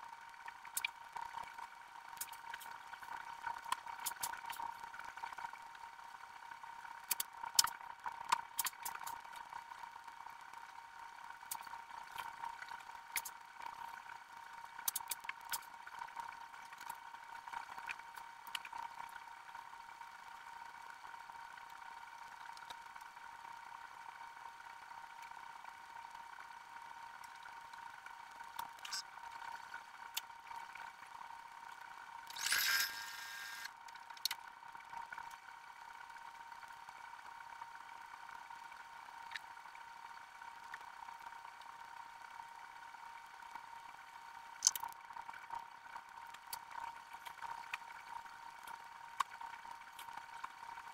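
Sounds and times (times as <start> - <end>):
high-pitched hum: 32.3 - 33.7.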